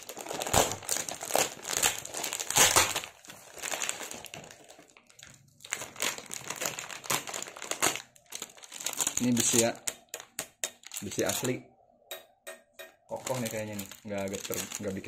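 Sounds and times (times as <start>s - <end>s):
plastic packaging crinkling: 0.0s - 11.6s, 13.1s - 15.0s
scissors cutting plastic: 13.1s - 15.0s.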